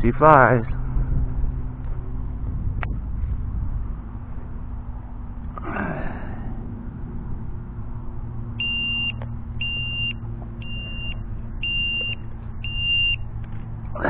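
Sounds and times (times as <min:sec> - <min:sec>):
high-pitched electronic beeps: 0:08.6 - 0:13.2.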